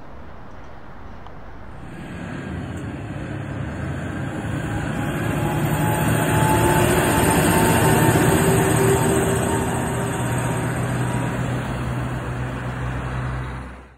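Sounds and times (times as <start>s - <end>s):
crane engine and tyre noise: 0.0s - 13.9s.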